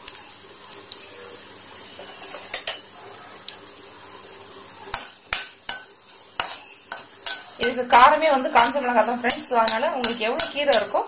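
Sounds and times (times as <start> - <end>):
spices sizzling in hot oil: 0.0 - 11.0
spoon clicking against pan: 8.6 - 10.9.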